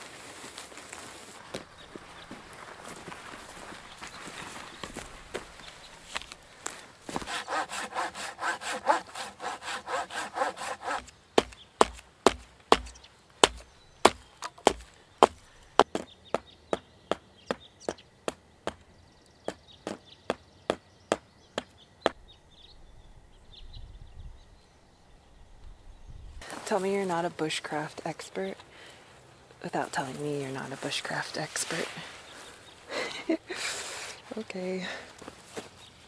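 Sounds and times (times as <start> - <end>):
hand saw cutting wood: 7.1 - 15.4
sharp knocks on wood: 10.9 - 18.8.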